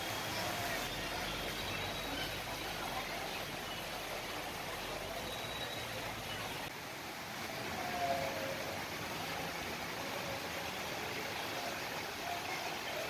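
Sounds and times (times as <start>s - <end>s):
city ambience hiss: 0.0s - 13.0s
faint whistle-like tones: 5.1s - 6.0s.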